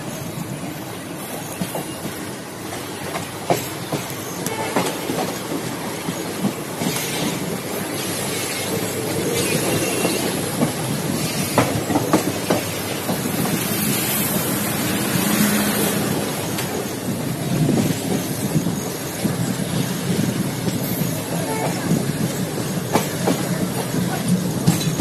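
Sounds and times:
train wheels rumbling on rail: 0:00.0 - 0:25.0
wheels clicking over rail joints: 0:16.2 - 0:25.0.

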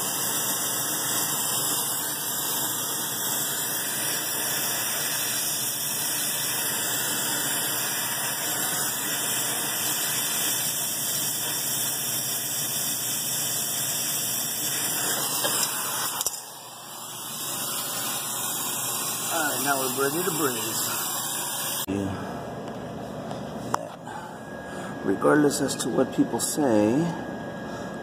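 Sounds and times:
torch flame hissing: 0:00.0 - 0:21.9
torch click: 0:14.6 - 0:16.6.

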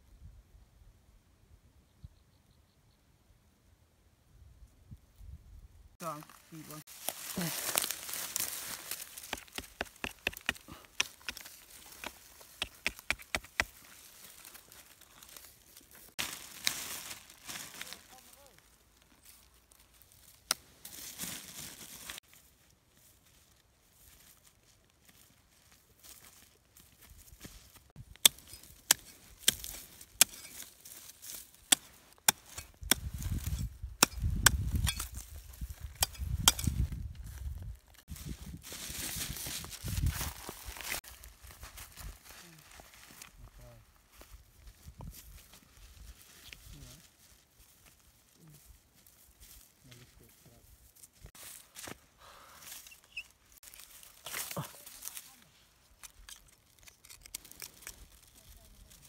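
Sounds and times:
dry mud crackling and crunching: 0:06.0 - 0:59.0
machete chopping dry mud: 0:08.9 - 0:13.8, 0:28.2 - 0:30.7, 0:31.6 - 0:35.2, 0:36.0 - 0:36.8.

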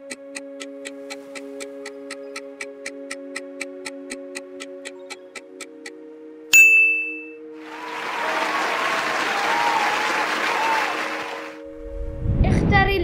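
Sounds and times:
bright ding: 0:06.6 - 0:07.4
crowd applause: 0:07.6 - 0:11.6.

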